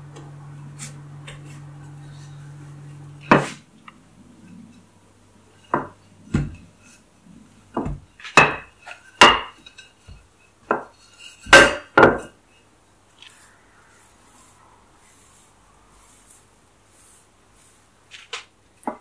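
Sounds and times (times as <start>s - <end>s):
rolling pin knocking and rolling: 3.2s - 3.7s, 5.6s - 12.4s, 18.1s - 19.0s.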